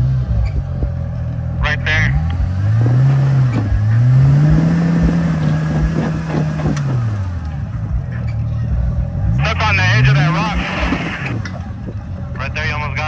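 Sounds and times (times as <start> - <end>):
off-road vehicle engine revving: 0.0 - 13.0
knocks and clatter: 0.3 - 1.4, 5.0 - 7.1.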